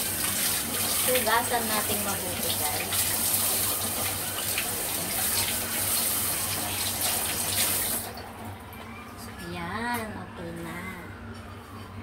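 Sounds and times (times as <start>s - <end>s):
tap water running into sink: 0.0s - 8.6s.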